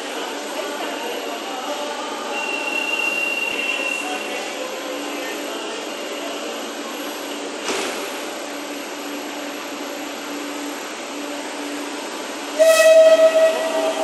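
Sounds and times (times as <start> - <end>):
train horn blast: 12.6 - 14.0.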